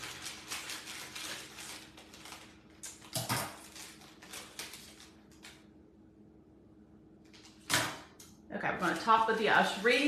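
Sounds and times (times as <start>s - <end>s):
scissors snipping plastic bag: 0.0s - 5.6s
plastic crinkling: 0.0s - 5.7s, 8.8s - 10.0s.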